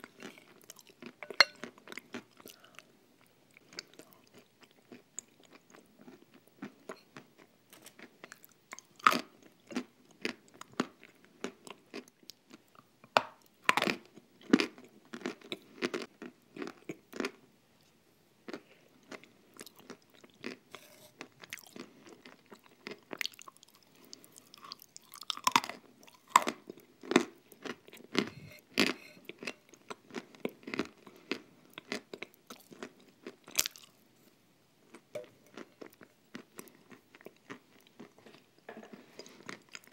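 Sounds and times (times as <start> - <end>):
spoon scraping glass bowl: 1.2 - 1.7, 20.7 - 21.3, 28.2 - 29.6.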